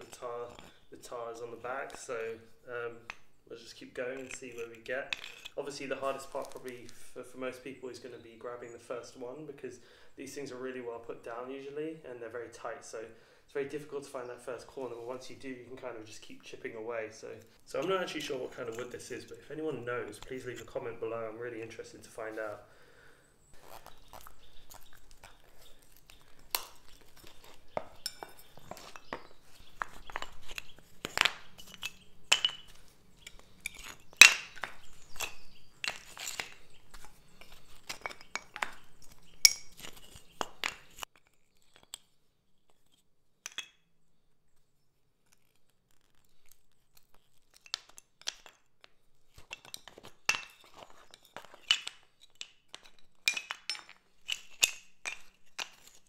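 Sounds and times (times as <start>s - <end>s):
wooden blocks clacking: 0.0s - 7.6s, 14.6s - 22.2s, 23.6s - 43.8s, 45.4s - 56.0s
pry bar scraping and clicking: 3.0s - 3.4s, 4.1s - 5.7s, 23.6s - 43.7s, 45.2s - 56.0s.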